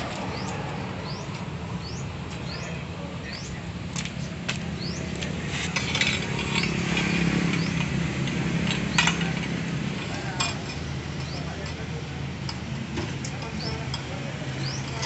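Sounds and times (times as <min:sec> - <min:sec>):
metal clinks and knocks: 0:05.7 - 0:11.8.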